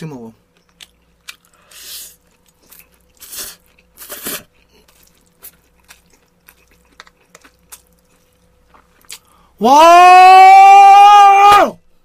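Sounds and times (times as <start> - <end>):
chewing with wet mouth clicks: 0.5 - 9.4
man slurping noodles: 3.2 - 4.5.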